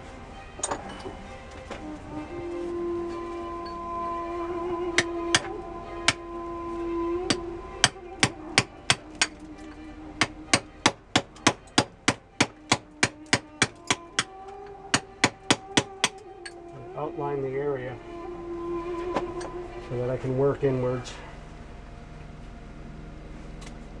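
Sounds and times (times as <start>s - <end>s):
hammer striking chisel on stone: 5.0s - 6.2s, 7.3s - 14.3s, 14.9s - 16.6s.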